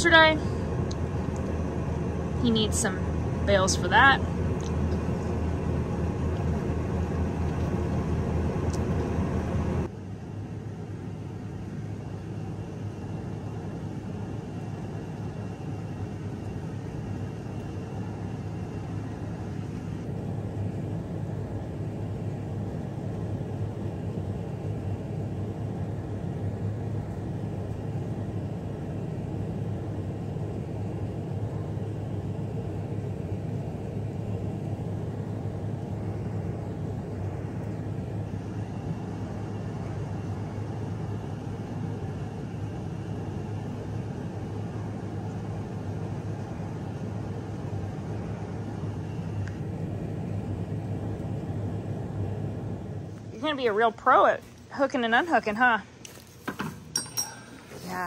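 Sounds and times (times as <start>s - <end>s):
tractor engine running: 0.0s - 33.6s
baler working: 53.2s - 58.0s.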